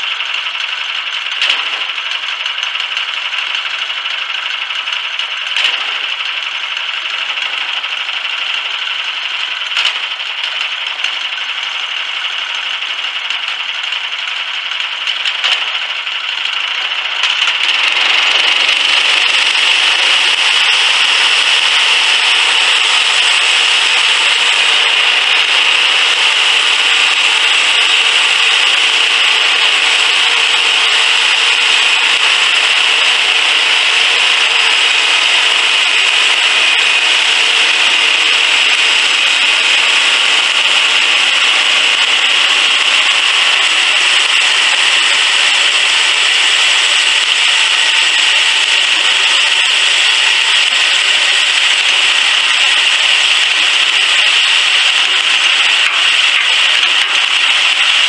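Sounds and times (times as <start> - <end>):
bandsaw sawmill cutting log: 0.0 - 58.0
small gasoline engine: 0.0 - 58.0.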